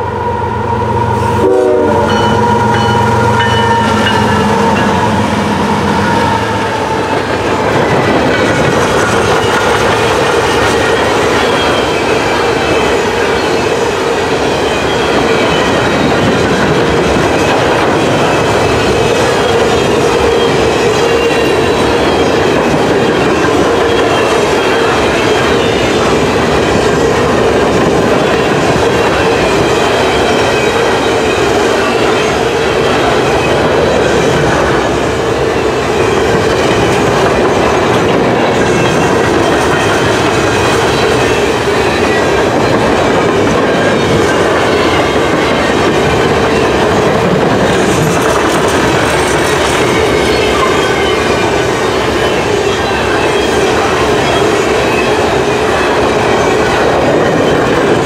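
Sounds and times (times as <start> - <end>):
steel wheels rumbling on rail: 0.0 - 58.0
high brake squealing: 9.2 - 16.3.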